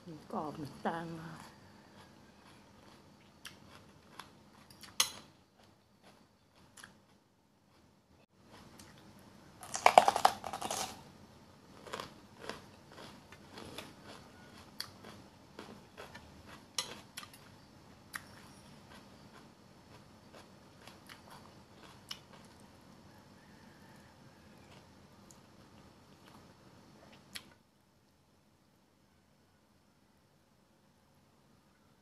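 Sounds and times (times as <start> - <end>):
chewing clicks: 2.0 - 7.0
crisp crunching bite: 9.6 - 11.0, 11.8 - 17.4.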